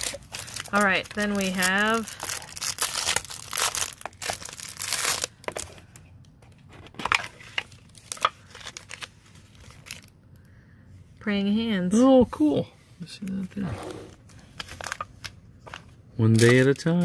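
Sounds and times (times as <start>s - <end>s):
plastic wrap crinkling and tearing: 0.0s - 6.0s, 7.0s - 10.1s, 14.1s - 17.0s.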